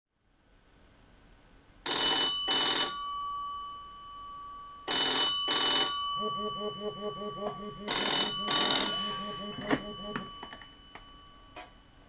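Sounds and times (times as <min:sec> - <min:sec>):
rotary telephone bell ringing: 0:01.9 - 0:06.9, 0:07.9 - 0:12.0.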